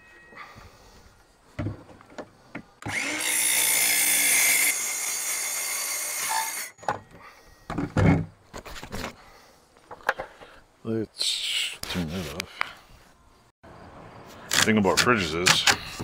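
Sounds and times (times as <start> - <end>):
circular saw cutting sheet metal: 2.9 - 6.7.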